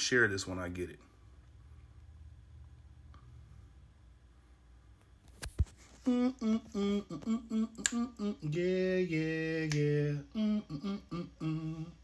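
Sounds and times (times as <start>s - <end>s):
man humming: 6.0s - 12.0s.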